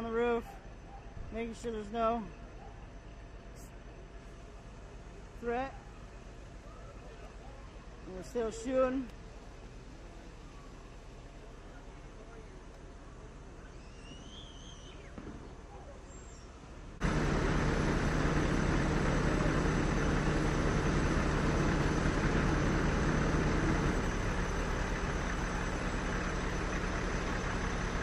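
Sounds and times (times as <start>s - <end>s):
diesel engine running hard: 16.8s - 28.0s.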